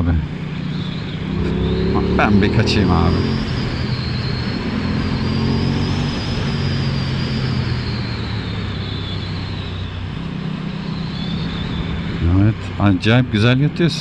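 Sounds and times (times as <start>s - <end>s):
motorcycle engine running: 0.4s - 7.4s
wind rushing: 1.1s - 7.2s.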